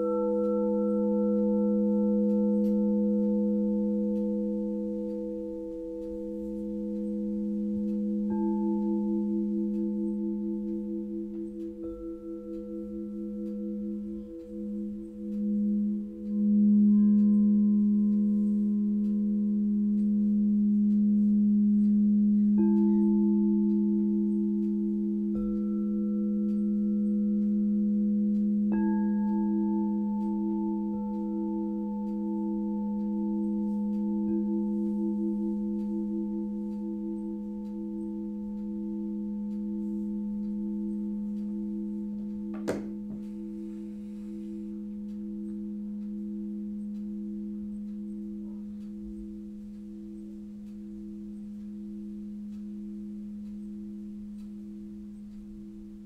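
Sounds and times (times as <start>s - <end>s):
bowls being struck: 0.0s - 54.0s
crystal singing bowls ringing: 0.0s - 56.0s
sharp knock: 42.6s - 43.2s.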